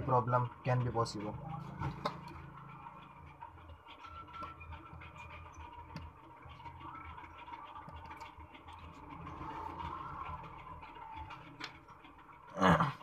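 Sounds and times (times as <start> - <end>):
screwdriver clicking and scratching: 4.0 - 9.1.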